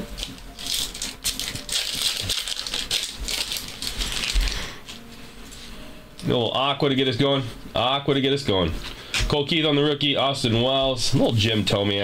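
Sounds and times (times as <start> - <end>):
trading cards rattling and rustling: 0.0 - 4.7.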